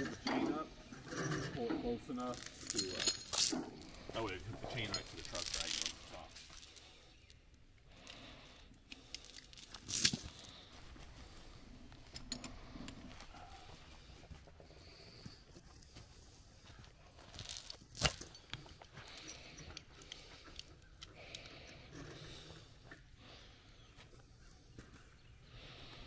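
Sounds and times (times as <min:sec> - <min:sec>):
metal clinking and clanking: 0:00.0 - 0:06.7, 0:09.1 - 0:10.5, 0:17.3 - 0:19.9.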